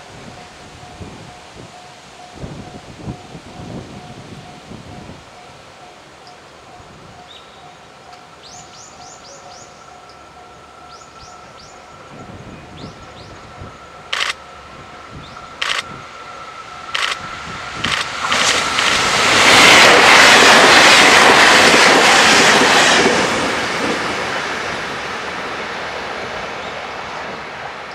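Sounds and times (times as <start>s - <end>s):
diesel train passing at speed: 0.0s - 27.9s.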